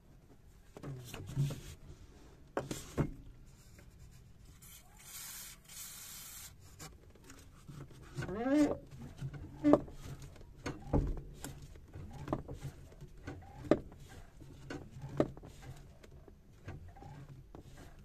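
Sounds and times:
aerosol can hissing: 0:04.6 - 0:06.6.

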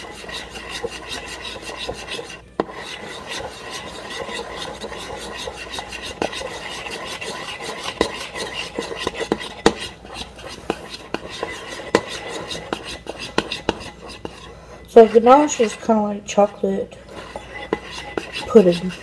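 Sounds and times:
spoon scraping in bowl: 0:00.0 - 0:19.0.

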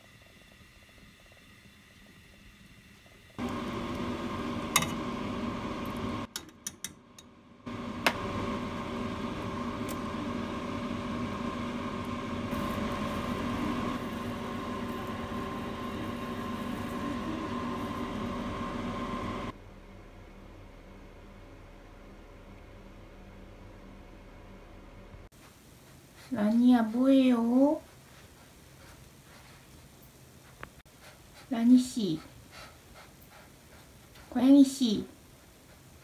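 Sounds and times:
kitchen appliance motor humming: 0:00.9 - 0:06.3, 0:07.6 - 0:19.6.

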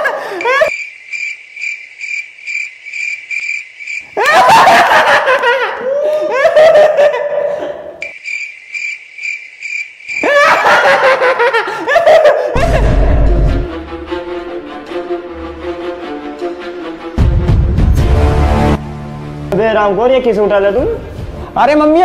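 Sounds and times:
loud laughter: 0:00.0 - 0:00.7, 0:04.2 - 0:08.0, 0:10.2 - 0:13.7
pulsing cricket chirp: 0:00.4 - 0:04.2, 0:08.0 - 0:10.4
deep low boom: 0:12.6 - 0:13.7.

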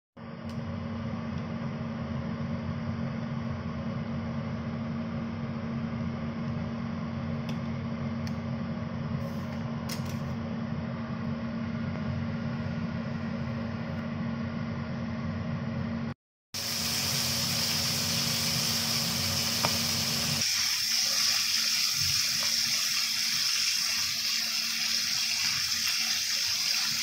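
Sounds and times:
kitchen fan humming: 0:00.2 - 0:27.0.

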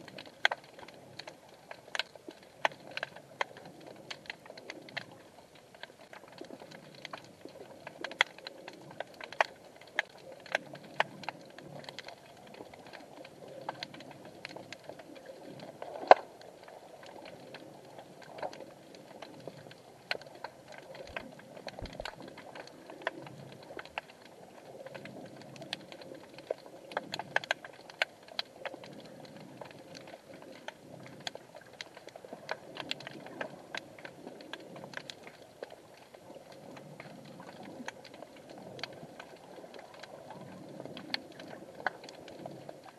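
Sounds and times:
faint low underwater wash: 0:00.0 - 0:42.9
underwater clicks and snaps: 0:00.0 - 0:42.9.

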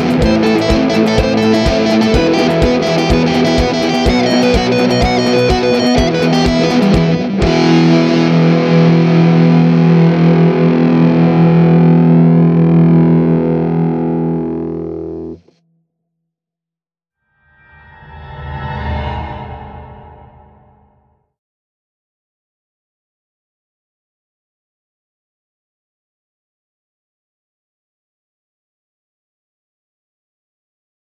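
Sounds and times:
drum hits: 0:00.0 - 0:07.8
rock music: 0:00.0 - 0:15.4.

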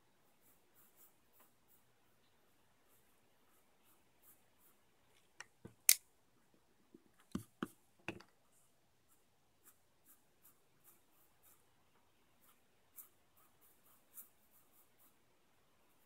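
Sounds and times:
pencil scratching on paper: 0:00.2 - 0:05.1, 0:09.0 - 0:11.8, 0:12.4 - 0:15.3.

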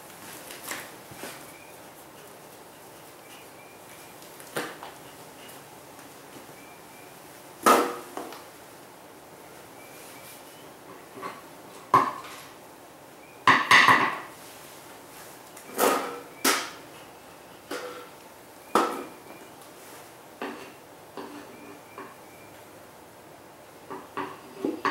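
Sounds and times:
knocks and clatters of hard objects: 0:11.2 - 0:12.4, 0:13.5 - 0:14.3, 0:23.9 - 0:24.9.

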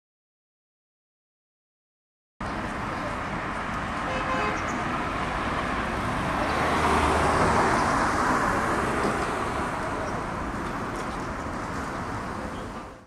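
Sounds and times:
steady traffic noise: 0:02.4 - 0:13.0
vehicle passing: 0:03.0 - 0:13.0.

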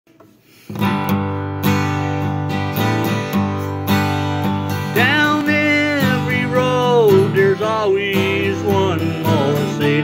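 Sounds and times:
acoustic guitar strumming: 0:00.5 - 0:10.0
man singing: 0:04.8 - 0:10.0.

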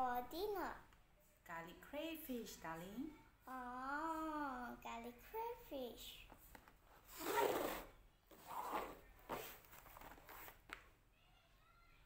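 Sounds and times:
cardboard box scraping on table: 0:07.0 - 0:10.6.

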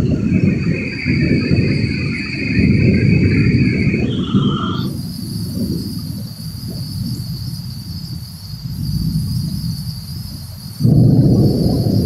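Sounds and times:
crickets trilling: 0:00.0 - 0:12.0
heavy rain hissing: 0:00.0 - 0:12.0
thunder rumble: 0:00.0 - 0:12.0.

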